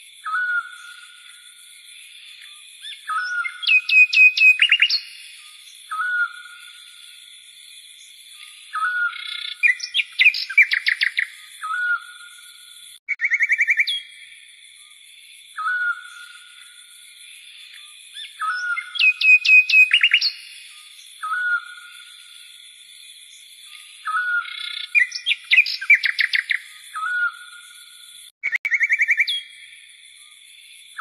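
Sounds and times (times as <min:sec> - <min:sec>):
bird whistled phrase: 0:03.0 - 0:05.1, 0:18.3 - 0:20.4, 0:28.4 - 0:29.5.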